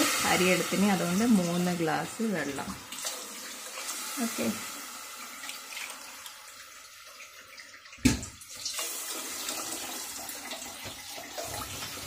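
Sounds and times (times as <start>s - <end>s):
water pouring into pot: 0.0s - 12.0s.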